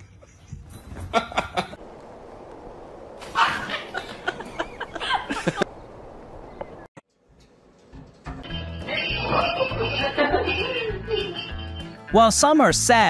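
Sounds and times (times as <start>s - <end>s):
person giggling: 0.0s - 1.8s, 3.4s - 5.7s.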